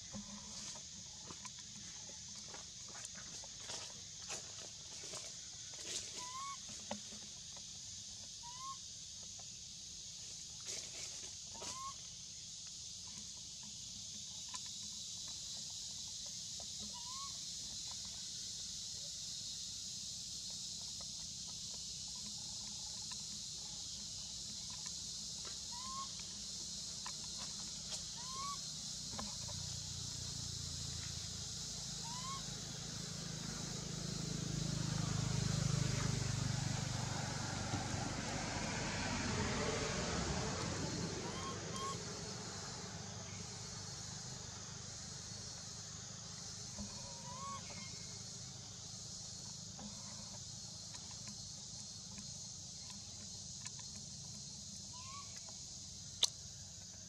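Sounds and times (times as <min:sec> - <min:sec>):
animal rising chirp: 0:41.2 - 0:42.0.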